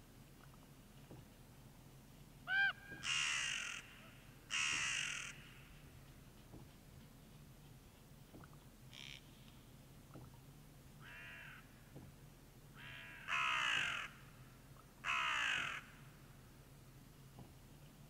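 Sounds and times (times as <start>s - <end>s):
ravens croaking: 2.5s - 5.6s, 12.8s - 14.2s, 15.0s - 16.0s.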